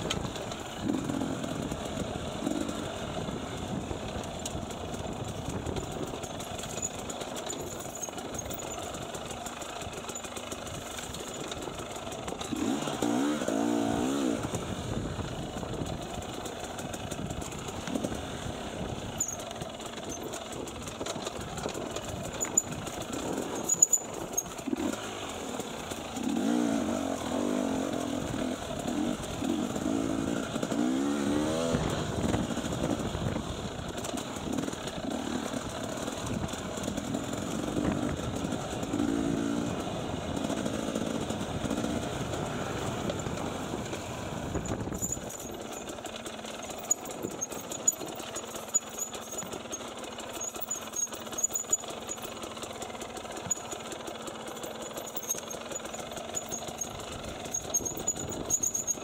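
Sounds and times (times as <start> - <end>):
dirt bike engine revving: 0.5 - 3.4, 12.2 - 15.0, 22.2 - 33.2, 34.0 - 45.5.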